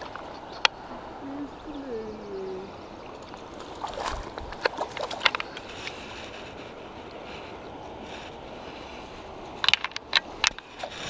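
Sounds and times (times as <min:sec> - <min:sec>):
river flowing: 0:00.0 - 0:11.0
water splashing and sloshing: 0:00.0 - 0:11.0.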